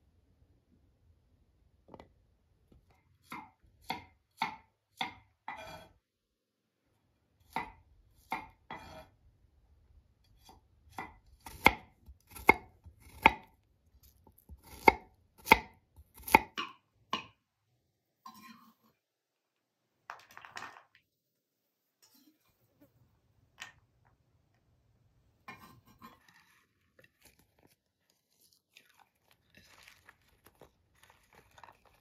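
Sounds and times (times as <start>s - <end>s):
knife cutting garlic on wooden board: 3.2s - 6.0s, 7.4s - 9.1s, 10.3s - 13.5s, 14.1s - 17.3s.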